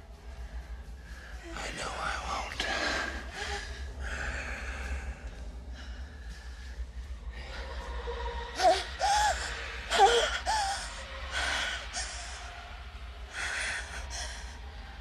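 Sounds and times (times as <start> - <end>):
low steady hum: 0.0 - 15.0
woman gasping and moaning: 8.6 - 12.4.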